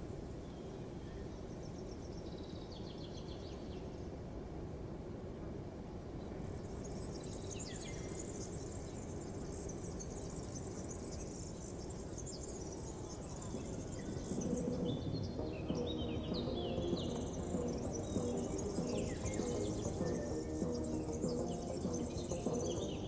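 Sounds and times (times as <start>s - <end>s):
insects and birds chirping: 6.1s - 23.0s
steady low rumble: 13.6s - 23.0s.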